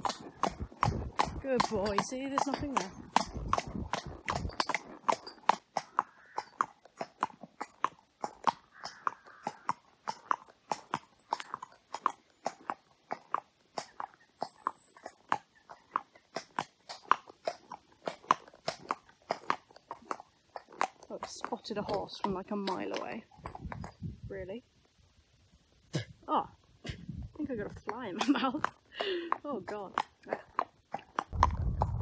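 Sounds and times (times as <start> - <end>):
horse hooves on wet tarmac: 0.0 - 23.9, 27.6 - 32.0.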